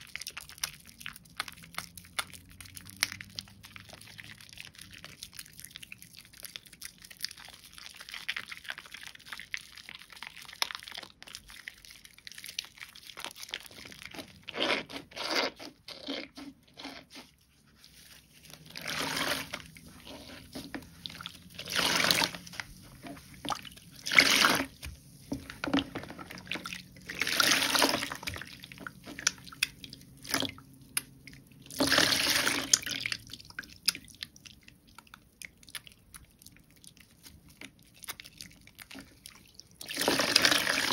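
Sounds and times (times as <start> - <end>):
soap squelching: 0.0 - 40.9
wet soap crackle: 0.0 - 40.9.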